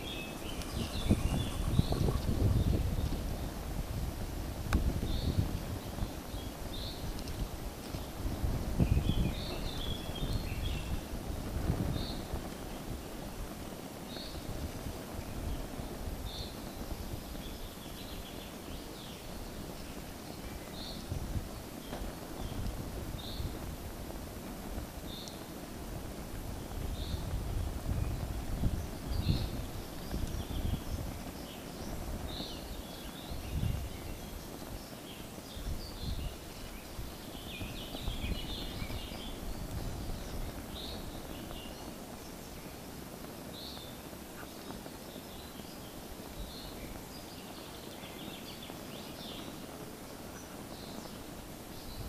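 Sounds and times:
high bird chirps: 0:00.0 - 0:02.4
small birds chirping: 0:00.0 - 0:52.0
wind rumbling on microphone: 0:00.0 - 0:52.0.

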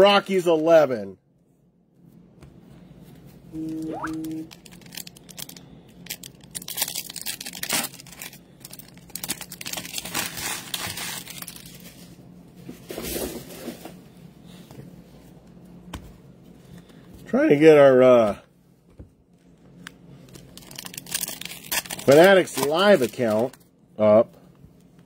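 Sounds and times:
wrapper crinkling and tearing: 0:04.2 - 0:12.1, 0:20.2 - 0:23.7.

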